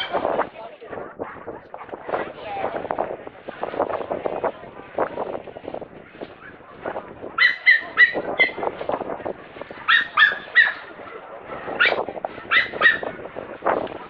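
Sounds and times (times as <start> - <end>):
small dog yipping: 7.4 - 8.6, 9.9 - 10.9, 11.8 - 13.1.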